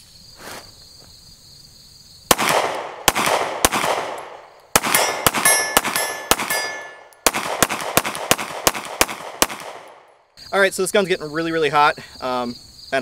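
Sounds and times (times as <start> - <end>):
pistol shots echoing: 2.3 - 10.1
high metallic ring: 5.0 - 7.2.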